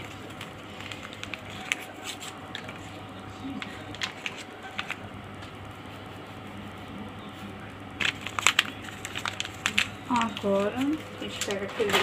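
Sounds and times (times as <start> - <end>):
kitchen handling clicks and rustles: 10.2 - 12.0.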